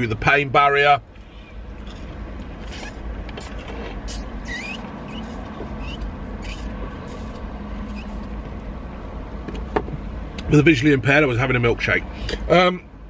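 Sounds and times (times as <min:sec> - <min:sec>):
low vehicle rumble: 0:01.0 - 0:13.0
slurping through a straw: 0:01.8 - 0:08.2.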